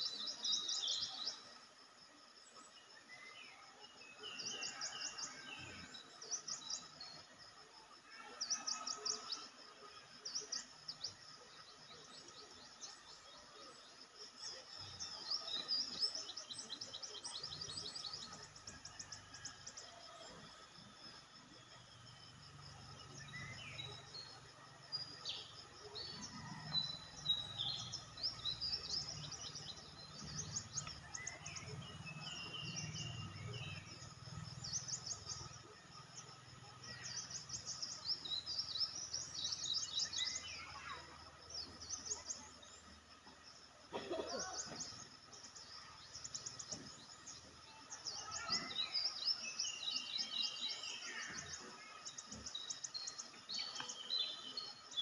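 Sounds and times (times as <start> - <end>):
birds chirping and trilling: 11.8 - 55.0.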